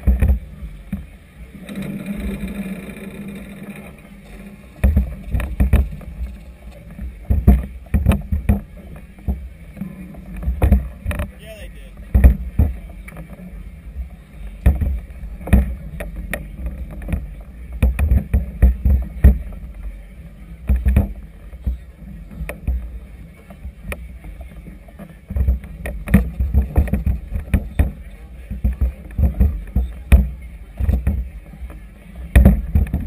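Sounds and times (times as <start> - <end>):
choppy water: 0.0 - 33.0.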